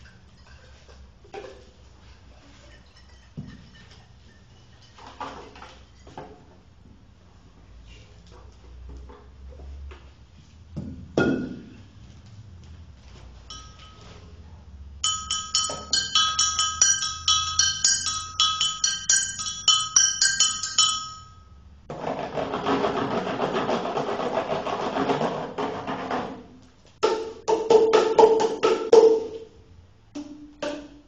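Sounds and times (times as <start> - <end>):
pitched percussion ringing strikes: 15.0 - 21.6.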